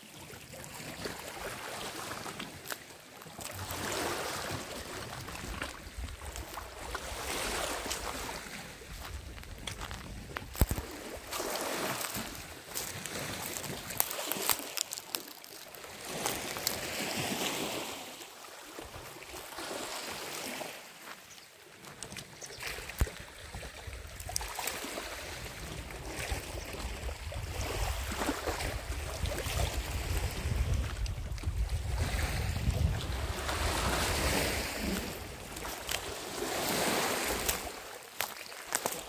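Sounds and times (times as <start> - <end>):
small waves washing on shore: 0.0 - 39.0
wind on microphone: 3.8 - 13.9, 22.5 - 37.8.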